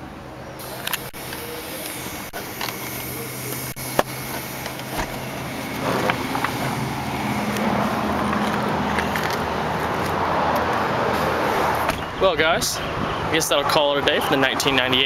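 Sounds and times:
outside noise: 0.0 - 15.0
car door opening: 4.0 - 6.8, 11.7 - 12.1.

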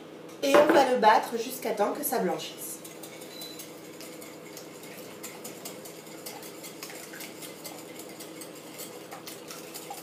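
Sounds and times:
whisk clicking against glass bowl: 2.8 - 10.0.

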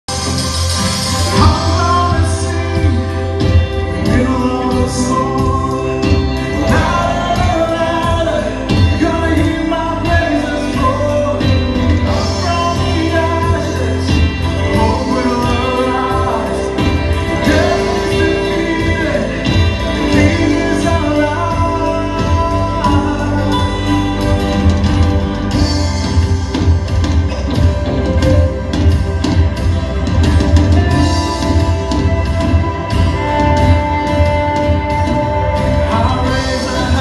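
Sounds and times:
bass: 0.0 - 37.0
drums: 0.0 - 37.0
keyboards: 0.0 - 37.0
guitars: 0.1 - 37.0
people singing: 1.3 - 24.0, 35.9 - 37.0.

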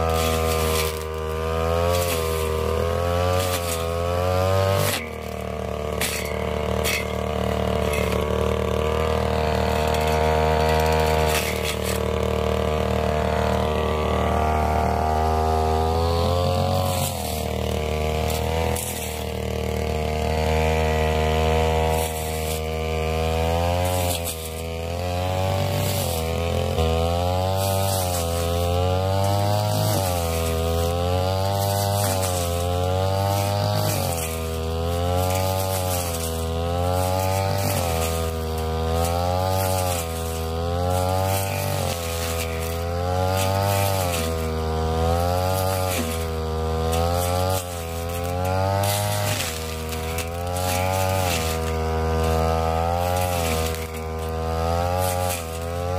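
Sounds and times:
brush cutter cutting grass: 0.0 - 55.9.

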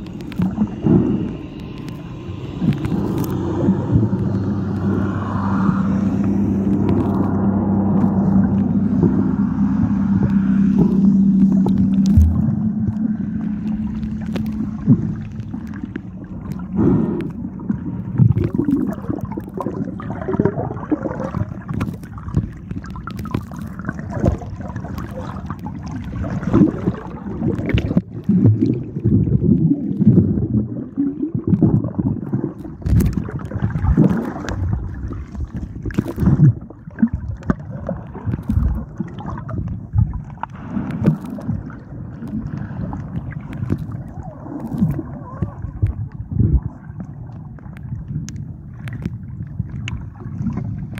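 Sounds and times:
underwater gurgling and sloshing: 0.0 - 50.9.

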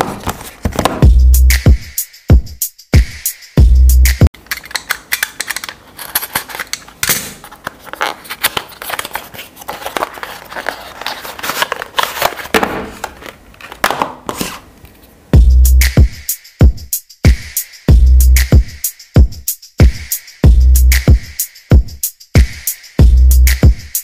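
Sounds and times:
knife blade scraping through seal: 4.5 - 12.5
cardboard box scraping and clicking: 7.5 - 14.6.

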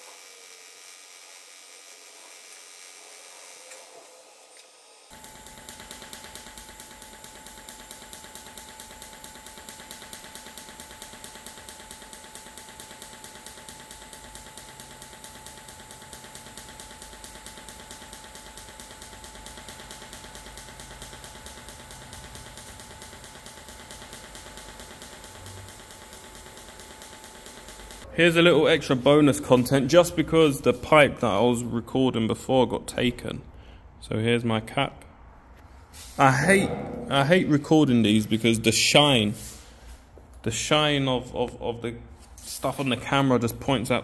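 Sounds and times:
welding arc hissing: 0.0 - 28.1, 36.0 - 36.4
pulsed arc crackling: 5.1 - 28.1.

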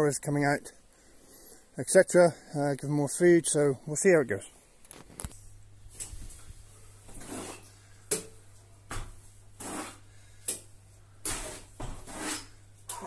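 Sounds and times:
trowel scraping plaster: 7.2 - 7.7, 9.6 - 10.1, 11.2 - 13.0.

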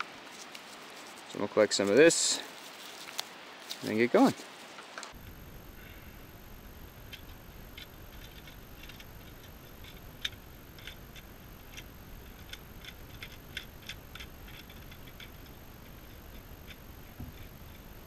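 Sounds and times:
knife scraping bark and wood: 0.0 - 5.1.

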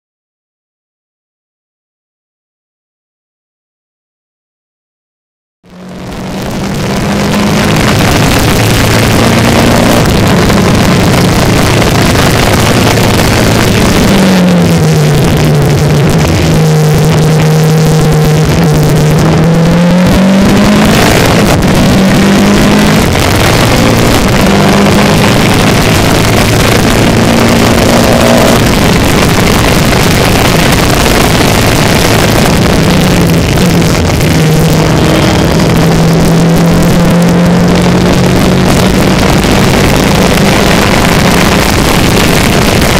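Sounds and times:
race car engine revving: 5.7 - 42.9.

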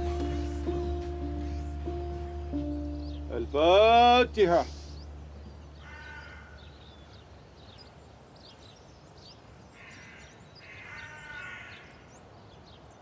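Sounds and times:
small birds chirping: 0.0 - 13.0
crow cawing: 5.8 - 7.2, 9.8 - 12.1.

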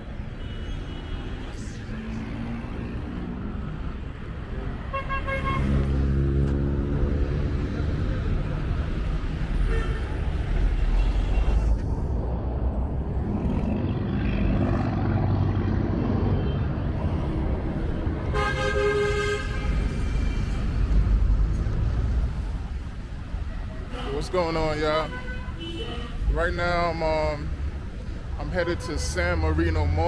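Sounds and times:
buses and cars passing: 0.0 - 30.0
vehicle horn: 4.9 - 5.9, 9.6 - 10.3, 18.3 - 19.9, 25.1 - 26.3.

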